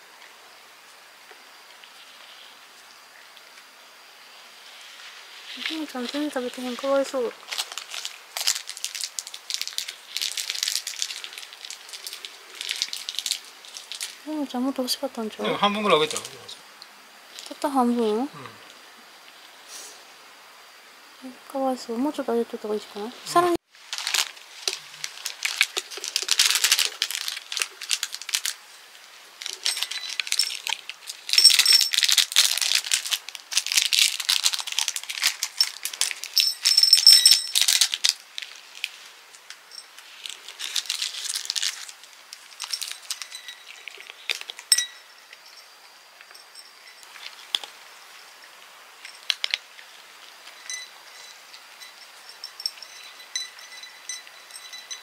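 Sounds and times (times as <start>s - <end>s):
foil sachet crinkling and tearing: 5.5s - 14.3s, 23.7s - 28.7s, 29.4s - 44.7s, 49.0s - 50.0s
dry treats rattling onto dishes: 5.7s - 14.2s, 23.8s - 28.6s, 29.4s - 45.6s
cats crunching treats: 7.4s - 14.2s, 15.7s - 16.5s, 23.8s - 28.6s, 29.4s - 44.7s, 47.0s - 47.8s, 49.0s - 50.6s.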